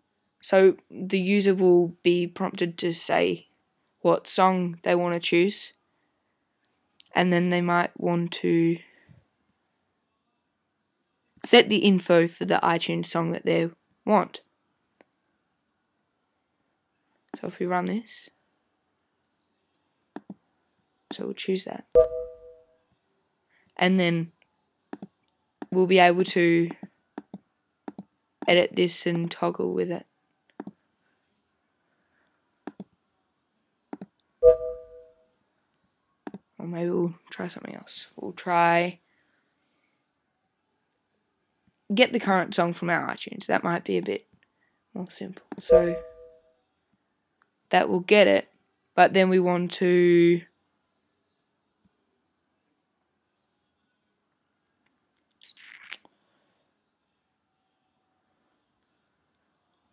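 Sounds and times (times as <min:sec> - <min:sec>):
computer chime: 0:22.0 - 0:22.6, 0:34.4 - 0:35.2, 0:45.6 - 0:46.4
soft clicks: 0:24.9 - 0:25.8, 0:26.7 - 0:28.5.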